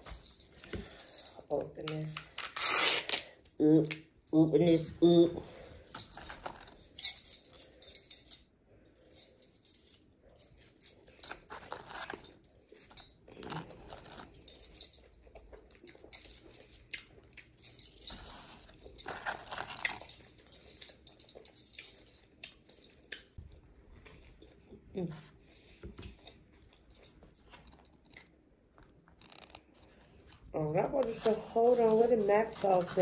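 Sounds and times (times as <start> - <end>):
soft clicks and rustles of food: 8.7 - 33.0.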